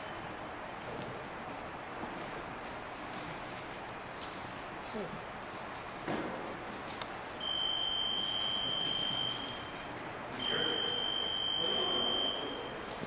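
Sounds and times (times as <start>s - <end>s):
high buzzer tone: 7.4s - 9.8s, 10.4s - 12.8s.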